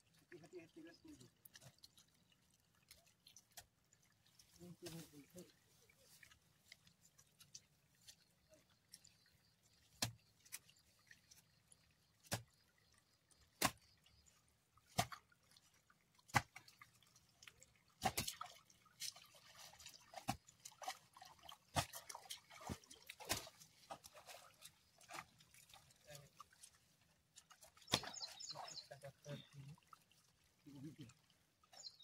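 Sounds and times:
wet slaps and splashes in mud: 0:09.8 - 0:10.7, 0:12.2 - 0:12.6, 0:13.4 - 0:14.0, 0:14.8 - 0:15.3, 0:16.2 - 0:16.9, 0:17.9 - 0:25.4, 0:27.4 - 0:28.7.

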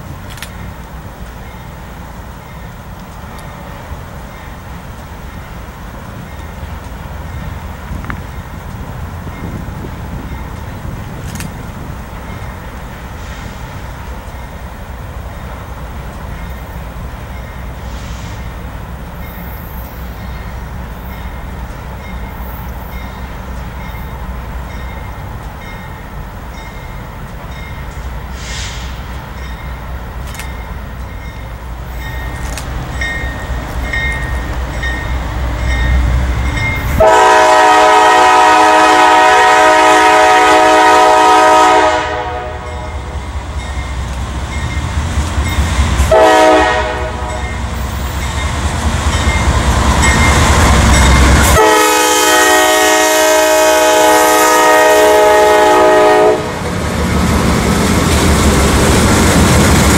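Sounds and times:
diesel locomotive rumbling: 0:00.0 - 0:59.9
train air horn blasts: 0:37.0 - 0:43.1, 0:46.1 - 0:47.6, 0:51.3 - 0:56.6.

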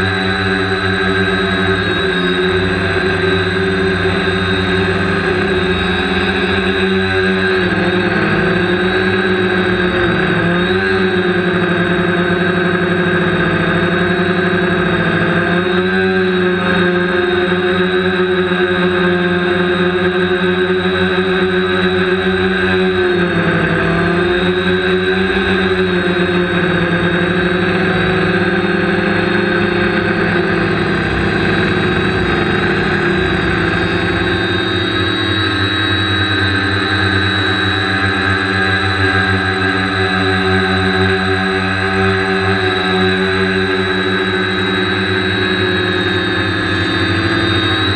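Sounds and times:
drone motors whining: 0:00.0 - 0:47.9.

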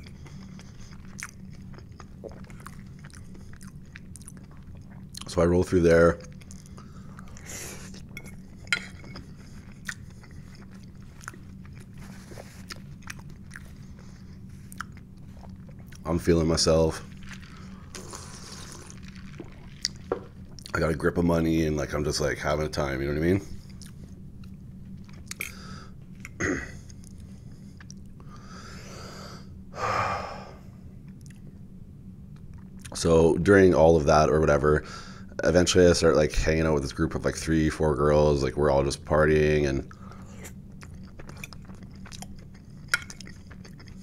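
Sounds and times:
close chewing and crunching: 0:00.0 - 0:21.2, 0:23.6 - 0:28.3, 0:39.3 - 0:44.0
steady low hum: 0:00.0 - 0:44.0.

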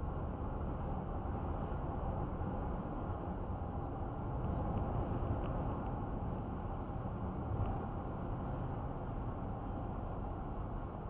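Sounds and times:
tyre and road noise: 0:00.0 - 0:11.0.

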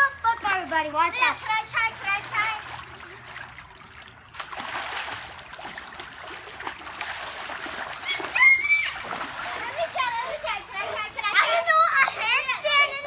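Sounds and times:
child's voice: 0:00.0 - 0:02.7, 0:09.5 - 0:13.0
water sloshing and splashing: 0:00.0 - 0:13.0.

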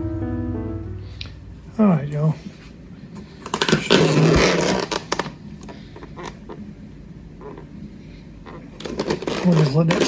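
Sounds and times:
plastic rustling and scraping: 0:03.2 - 0:06.5, 0:08.4 - 0:10.0.

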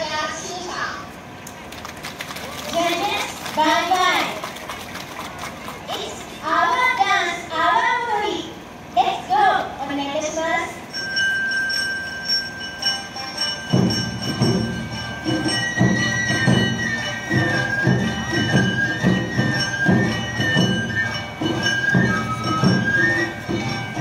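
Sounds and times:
bamboo flute melody: 0:12.3 - 0:24.0
drums driving rhythm: 0:12.8 - 0:24.0.

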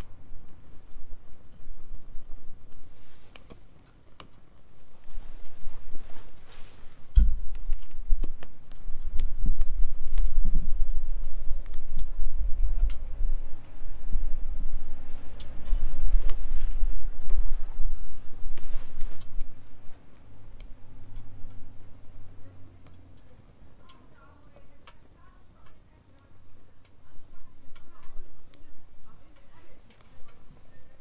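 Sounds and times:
gusting low rumble: 0:00.0 - 0:03.4, 0:04.6 - 0:24.8
wood fire crackling and popping: 0:00.0 - 0:22.2.

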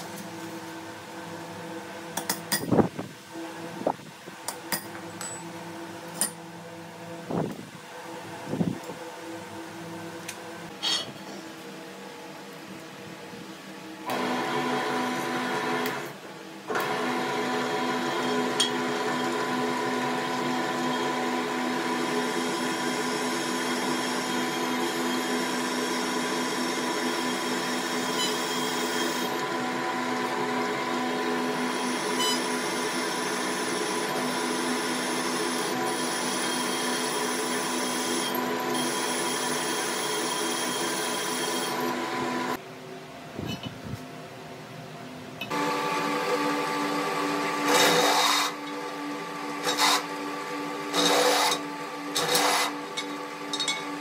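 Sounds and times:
drill press boring through steel: 0:16.7 - 0:42.6, 0:45.5 - 0:54.0
drill rasp: 0:47.7 - 0:48.6, 0:49.6 - 0:50.1, 0:50.9 - 0:51.6, 0:52.2 - 0:52.8.

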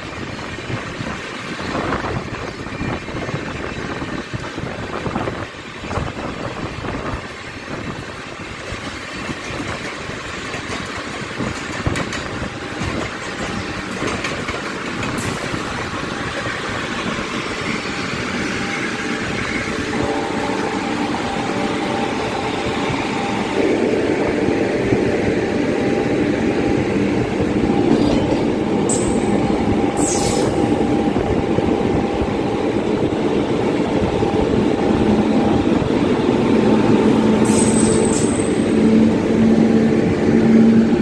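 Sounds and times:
train clacks: 0:00.0 - 0:41.0
train wheels rumbling on rails: 0:00.0 - 0:41.0
rushing air: 0:15.1 - 0:41.0.

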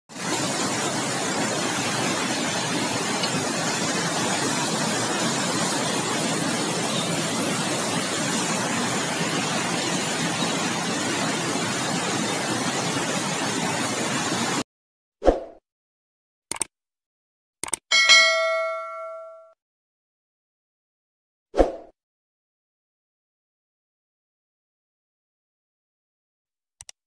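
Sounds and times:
floodwater rushing: 0:00.1 - 0:14.6.

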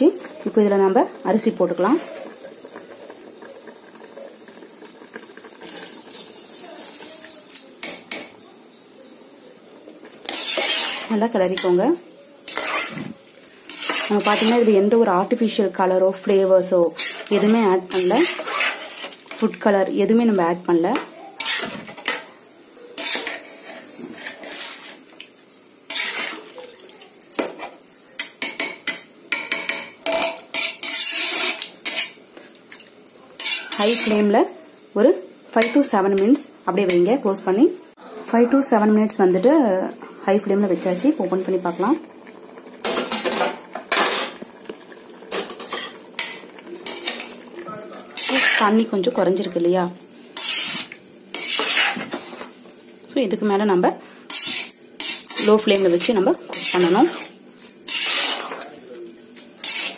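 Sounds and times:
metal ladle scraping pot: 0:10.2 - 0:11.8, 0:12.5 - 0:14.9, 0:16.3 - 0:19.4, 0:21.4 - 0:25.0, 0:25.9 - 0:27.6, 0:29.4 - 0:32.2, 0:33.4 - 0:34.3, 0:42.8 - 0:44.6, 0:45.3 - 0:47.4, 0:48.0 - 0:49.1, 0:50.4 - 0:52.4, 0:54.3 - 0:58.8, 0:59.4 - 0:59.9
metal clinks against pot: 0:26.7 - 0:28.7.

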